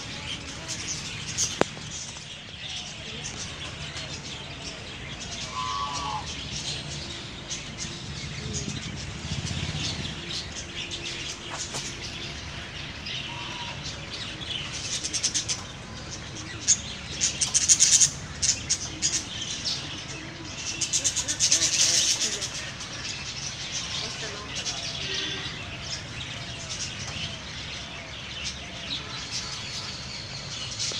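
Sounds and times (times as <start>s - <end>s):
budgerigars chirping and chattering: 0.0s - 30.9s.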